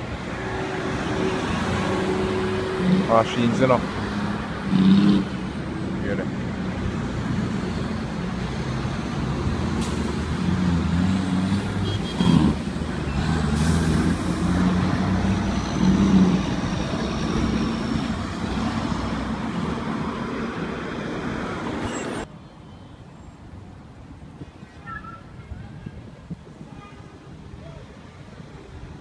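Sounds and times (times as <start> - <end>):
heavy trucks driving past: 0.0 - 22.3
other traffic: 0.0 - 29.0.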